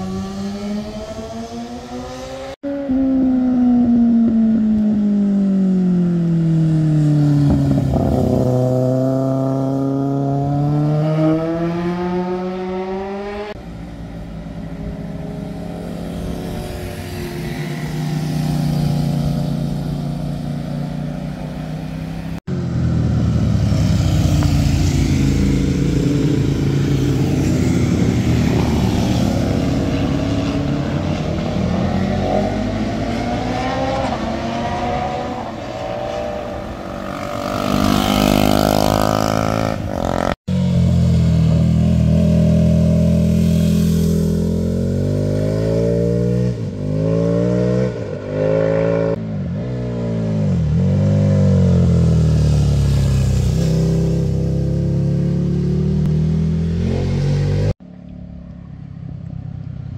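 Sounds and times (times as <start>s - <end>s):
motorcycle engines accelerating: 0.0s - 58.4s.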